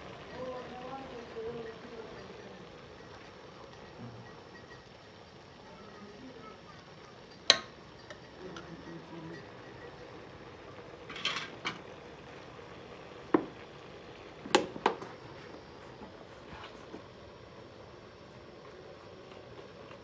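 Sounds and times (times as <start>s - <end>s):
metal utensils clinking: 11.0s - 11.8s.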